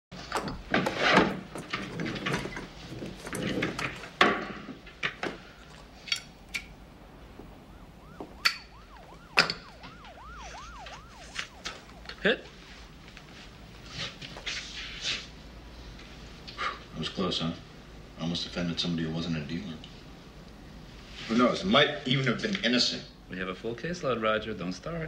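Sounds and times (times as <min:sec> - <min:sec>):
faint siren yelping: 0:07.3 - 0:13.0
rustling: 0:09.7 - 0:16.5.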